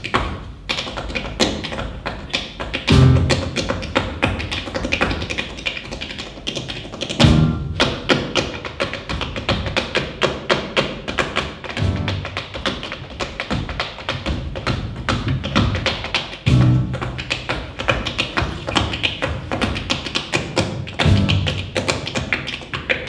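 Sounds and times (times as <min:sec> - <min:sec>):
tap shoes striking stage floor: 0:00.0 - 0:23.0
heavy low booming hit: 0:07.2 - 0:07.8.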